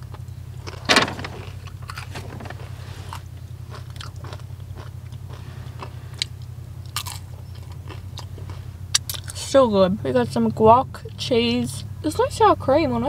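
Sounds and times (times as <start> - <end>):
tortilla chips crunching: 0.0 - 9.4.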